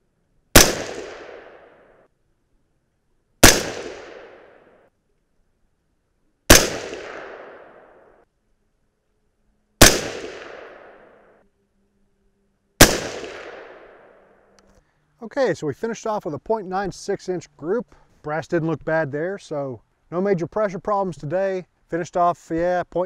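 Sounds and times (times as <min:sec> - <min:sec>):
rifle shots with echo: 0:00.5 - 0:02.0, 0:03.4 - 0:04.8, 0:06.5 - 0:08.2, 0:09.8 - 0:11.3, 0:12.8 - 0:14.3.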